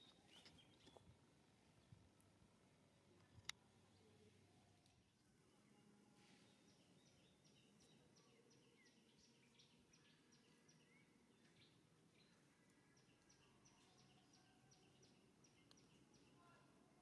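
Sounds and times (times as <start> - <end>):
small bird chirping: 0.0 - 2.0, 5.6 - 16.6.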